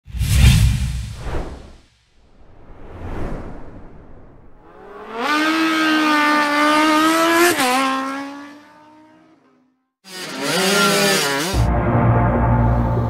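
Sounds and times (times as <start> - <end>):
motorcycle engine revving high: 4.6 - 9.5, 10.1 - 11.7.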